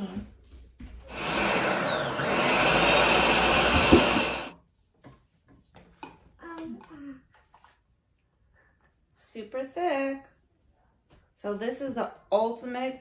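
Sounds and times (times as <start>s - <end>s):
blender motor whining: 1.1s - 4.6s.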